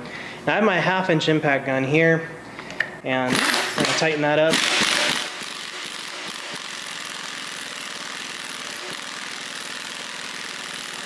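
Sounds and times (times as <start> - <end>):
pneumatic impact wrench running: 3.3 - 11.0.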